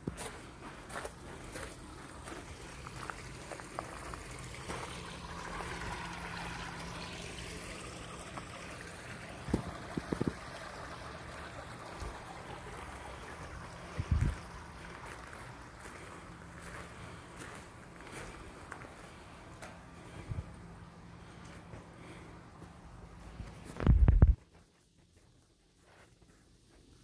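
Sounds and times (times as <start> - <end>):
gently running water: 1.1 - 20.3.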